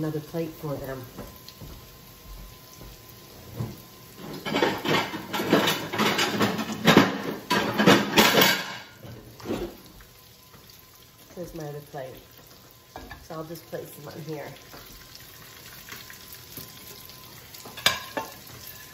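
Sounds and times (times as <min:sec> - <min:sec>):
chicken frying in oil: 0:00.0 - 0:18.9
dishes clattering and clinking: 0:03.6 - 0:09.8, 0:17.6 - 0:18.9.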